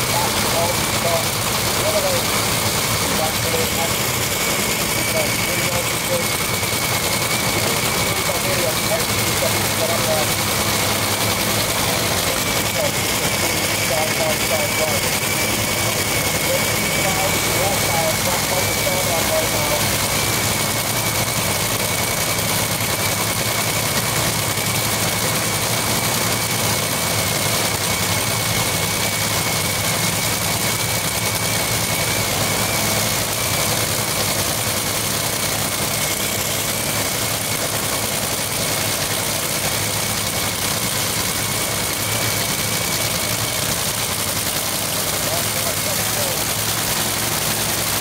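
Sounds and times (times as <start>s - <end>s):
engine idling: 0.0s - 48.0s.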